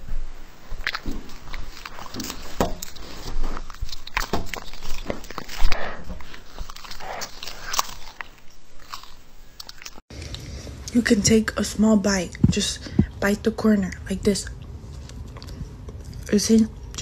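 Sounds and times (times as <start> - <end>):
cats chewing meat: 0.7 - 10.5.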